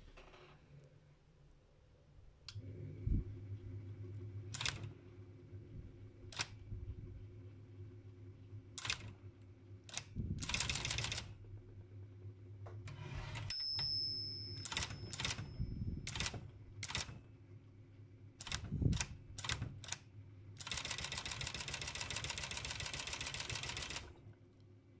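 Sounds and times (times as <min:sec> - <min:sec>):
steady low hum: 0:00.4 - 0:20.6
typewriter mechanism clicking: 0:04.6 - 0:04.9, 0:08.8 - 0:09.1, 0:14.6 - 0:15.4, 0:16.1 - 0:17.2, 0:18.4 - 0:20.0
thin high ring: 0:13.1 - 0:16.0.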